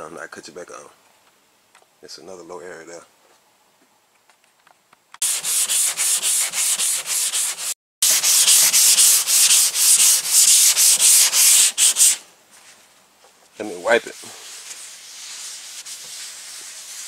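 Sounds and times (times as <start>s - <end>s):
hand sanding rasping strokes: 5.2s - 12.2s, 13.6s - 17.0s.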